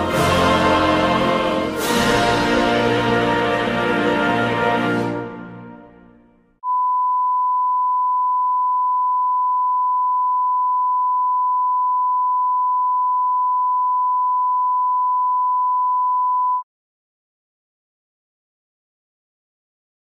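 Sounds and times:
pure test tone: 0:06.6 - 0:16.6.

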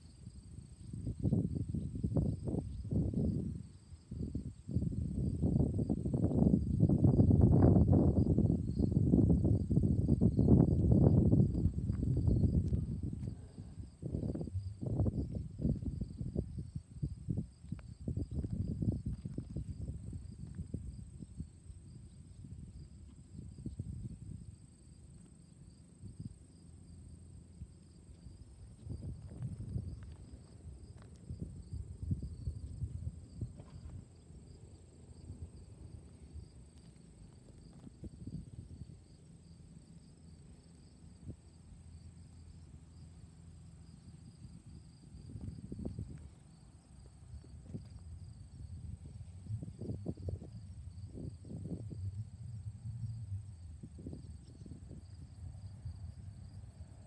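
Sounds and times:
insects chirping: 0:00.0 - 0:57.0
low rumble: 0:07.1 - 0:21.1, 0:48.0 - 0:57.0.

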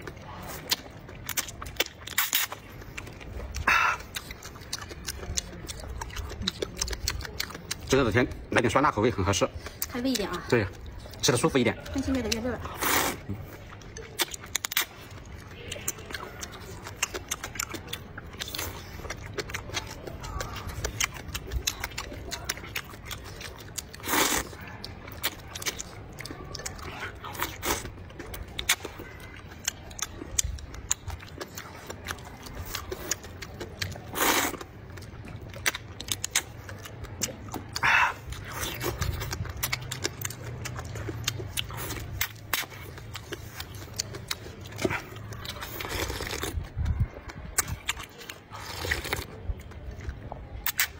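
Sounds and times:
wet chewing: 0:00.0 - 0:50.9
slurping noodles: 0:12.7 - 0:13.5, 0:24.0 - 0:24.6, 0:34.0 - 0:34.7, 0:44.7 - 0:46.6, 0:48.4 - 0:49.4
lip-smacking clicks: 0:49.0 - 0:50.9.

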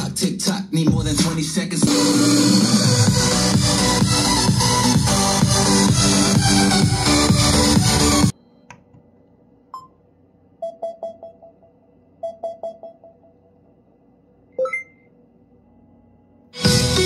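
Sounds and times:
electronic prompt beeps: 0:10.6 - 0:13.3, 0:14.6 - 0:15.1.

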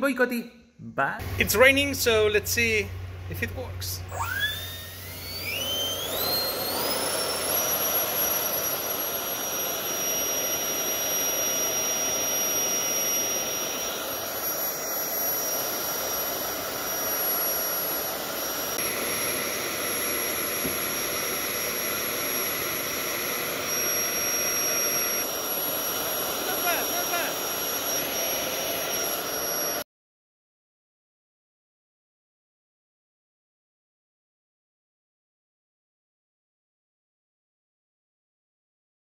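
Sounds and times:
electric fan whining: 0:01.2 - 0:29.8.

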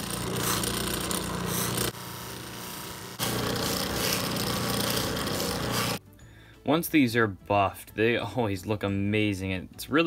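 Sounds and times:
buffing wheel motor humming: 0:00.0 - 0:06.0
rubbing hiss of polishing: 0:00.2 - 0:02.0.

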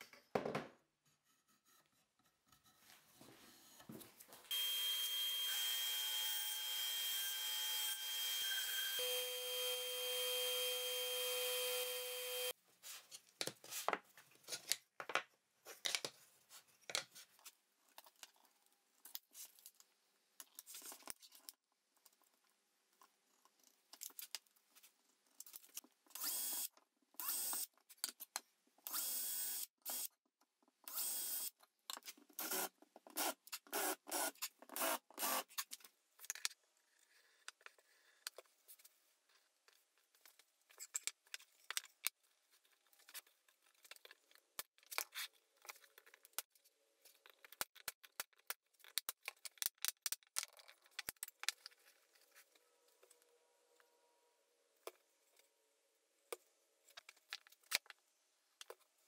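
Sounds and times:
wooden parts clicking and rubbing: 0:47.1 - 0:52.1.

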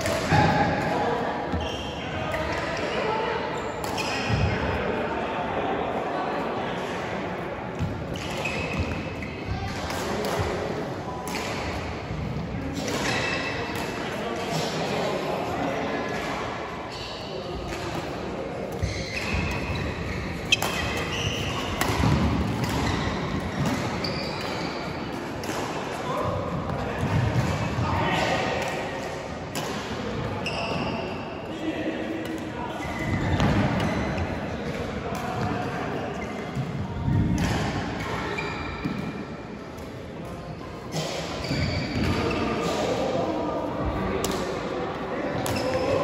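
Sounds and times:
sneakers squeaking on court floor: 0:01.5 - 0:04.5, 0:07.8 - 0:09.6, 0:18.6 - 0:28.3, 0:30.2 - 0:31.3, 0:32.2 - 0:34.3, 0:38.0 - 0:39.3, 0:40.9 - 0:42.8, 0:45.4 - 0:46.0.

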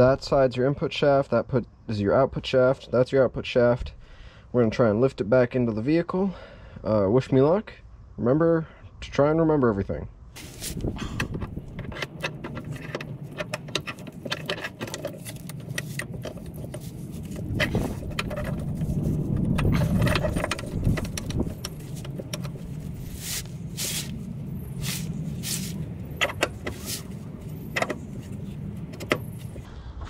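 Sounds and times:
metal parts clinking and rattling: 0:10.4 - 0:29.7.

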